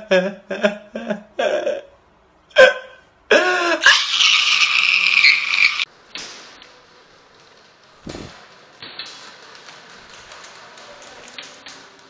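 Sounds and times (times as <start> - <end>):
man sobbing and wailing: 0.0 - 5.0.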